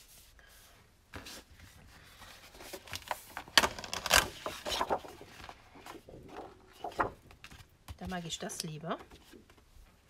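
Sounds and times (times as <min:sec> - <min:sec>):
paper rustling and sliding: 0:00.0 - 0:07.8.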